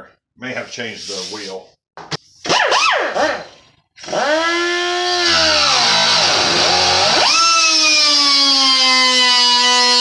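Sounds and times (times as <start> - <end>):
die grinder cutting sheet metal: 4.1 - 10.0.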